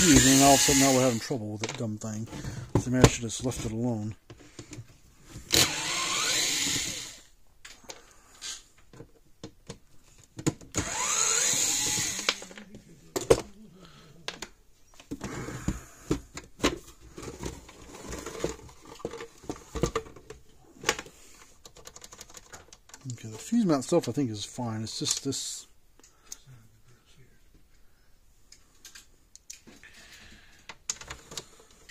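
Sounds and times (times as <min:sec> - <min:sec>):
electric screwdriver whining: 0:00.0 - 0:01.2, 0:05.5 - 0:07.3, 0:10.7 - 0:12.6
plastic case and screws clattering: 0:16.1 - 0:23.6, 0:30.7 - 0:31.9.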